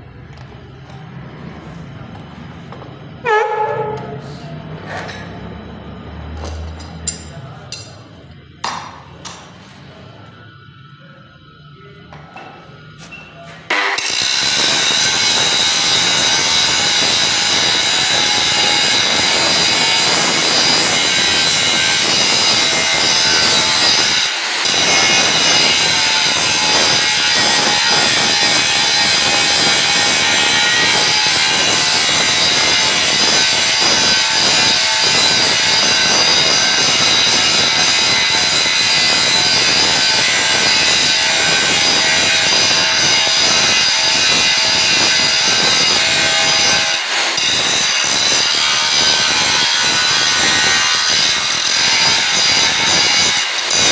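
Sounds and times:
angle grinder grinding steel: 13.7 - 53.9.

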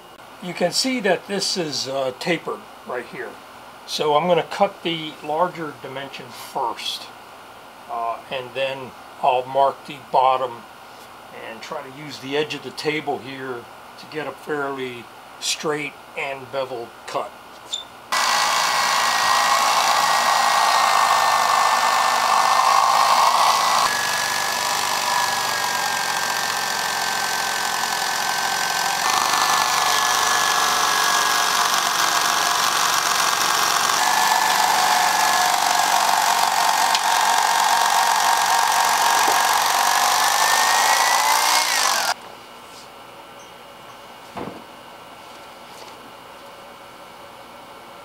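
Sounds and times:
electric knife motor whine: 18.1 - 42.2.

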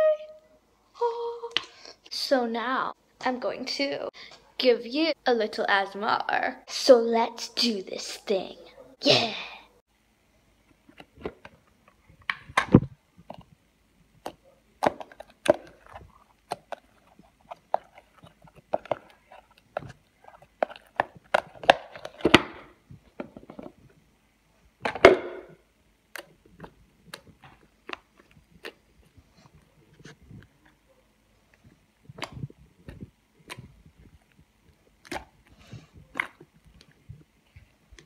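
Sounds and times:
slime squelching and popping: 14.2 - 22.7, 26.0 - 30.8, 31.5 - 38.0.

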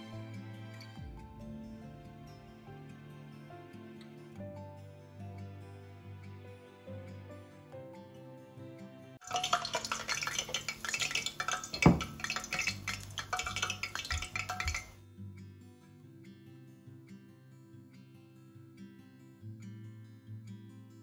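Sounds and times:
soft background music: 0.0 - 11.6
oil sizzling in a wok: 9.2 - 15.0
knock on wok: 11.7 - 12.2.

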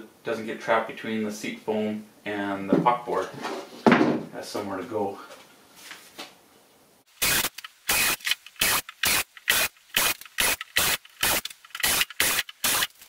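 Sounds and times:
cordless drill boring plastic: 7.2 - 13.0.

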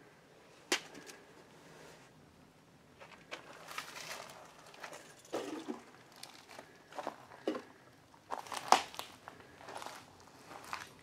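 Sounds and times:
footsteps crunching on debris: 8.3 - 11.0.

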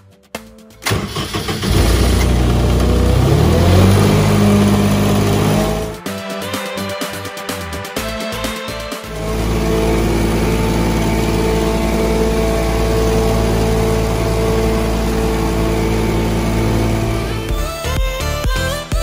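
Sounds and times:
music: 0.0 - 19.0
carpet cleaning machine running: 1.7 - 6.0, 9.1 - 17.5.

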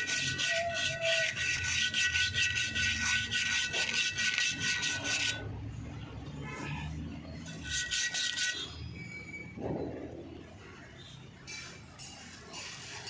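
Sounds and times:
hand scraping steel brake drum: 0.0 - 5.5, 6.6 - 9.5.

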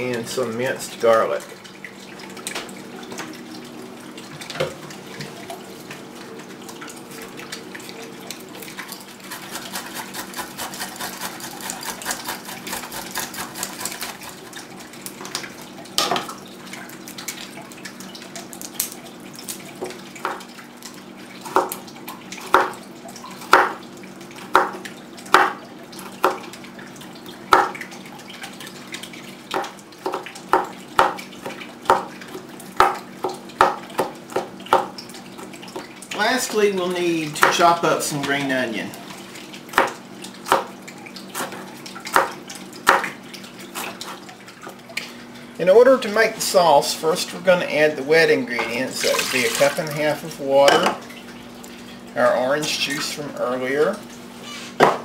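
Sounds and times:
knife chopping on plastic board: 22.5 - 22.7, 23.5 - 23.8, 24.5 - 25.6, 27.5 - 27.8, 29.5 - 32.1, 32.8 - 34.9, 41.4 - 43.1.

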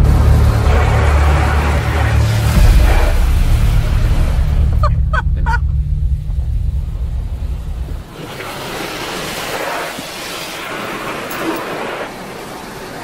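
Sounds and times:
water spray: 0.0 - 5.2, 8.0 - 13.0
loud low rumble: 0.0 - 8.2
wash strips sweeping over car: 8.1 - 13.0.

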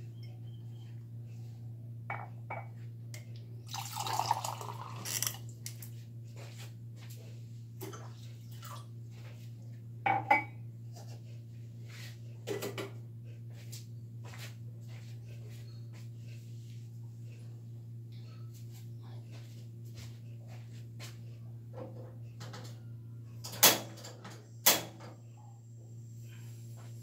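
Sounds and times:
steady low hum: 0.0 - 27.0
crockery knocking on a counter: 10.0 - 10.5.

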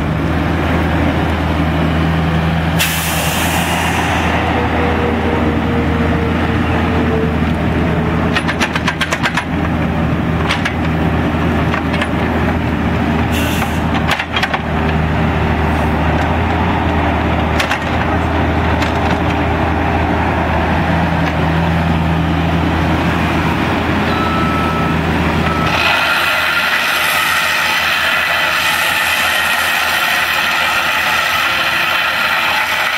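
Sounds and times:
excavator diesel engine running: 0.0 - 32.9
plate compactor rattling: 7.8 - 15.2.

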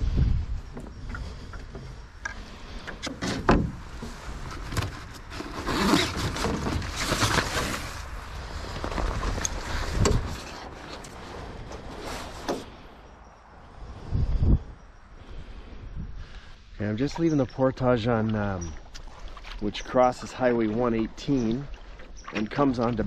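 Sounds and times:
wind rumbling on microphone: 0.0 - 23.0
paddle strokes splashing: 18.1 - 23.0.

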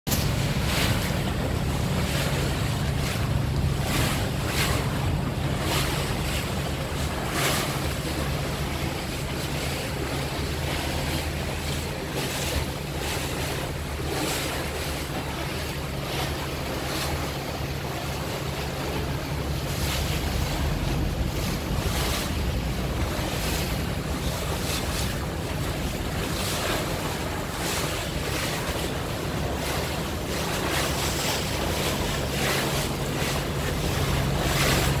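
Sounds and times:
boat engine droning: 0.1 - 35.0
water rushing past hull: 0.1 - 35.0
wind on microphone: 0.1 - 35.0.

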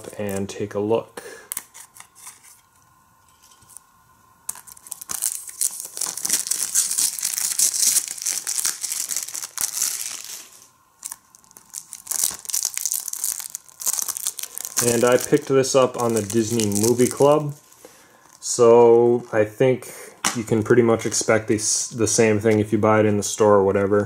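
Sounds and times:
plastic shrink wrap tearing: 4.5 - 18.5.

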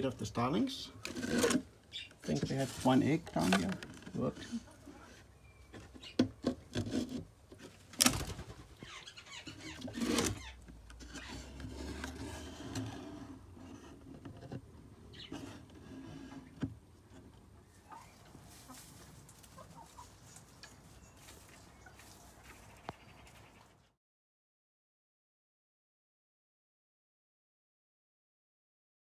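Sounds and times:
rustling: 1.0 - 9.0, 17.8 - 22.8
faint birds: 1.8 - 2.6, 3.4 - 6.8, 8.1 - 11.6, 13.6 - 24.0.

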